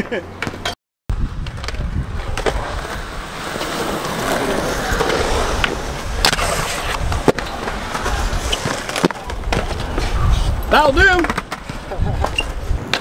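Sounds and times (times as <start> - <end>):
skate wheels rolling on concrete: 0.0 - 13.0
skates clacking on surface: 3.5 - 13.0.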